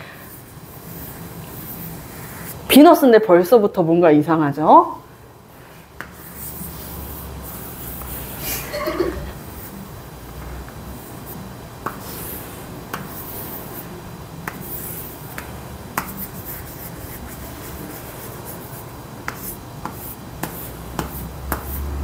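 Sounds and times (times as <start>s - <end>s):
chalk scratching on chalkboard: 0.3s - 2.6s, 5.6s - 8.7s, 11.0s - 22.0s
chalk tapping on board: 6.0s - 6.6s, 11.8s - 13.8s, 14.4s - 18.2s, 19.2s - 22.0s.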